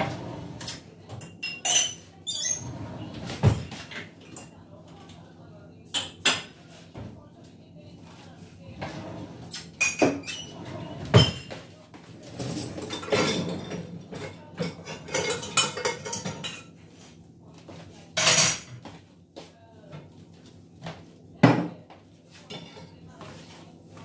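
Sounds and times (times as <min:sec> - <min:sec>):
dishes and cutlery clinking: 0:00.0 - 0:05.2, 0:08.8 - 0:19.0, 0:21.4 - 0:23.6.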